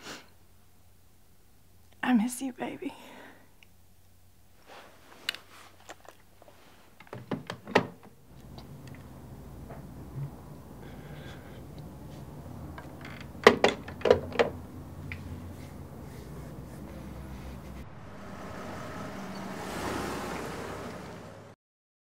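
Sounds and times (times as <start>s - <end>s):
low room hum: 8.0s - 21.6s.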